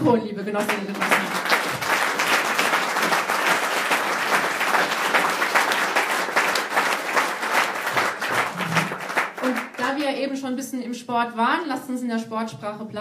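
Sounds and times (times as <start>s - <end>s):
audience applauding: 0.6s - 10.1s.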